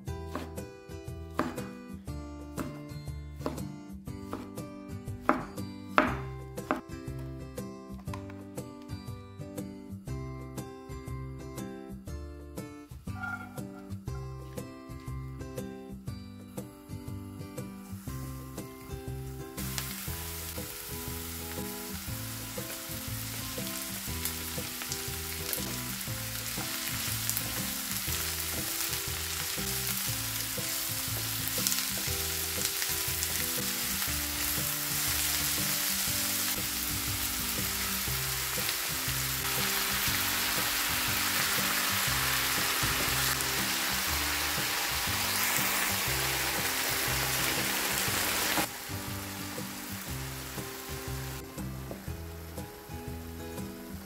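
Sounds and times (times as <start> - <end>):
background music with held notes: 0.0 - 54.0
vegetables sizzling in frying pan: 17.8 - 54.0.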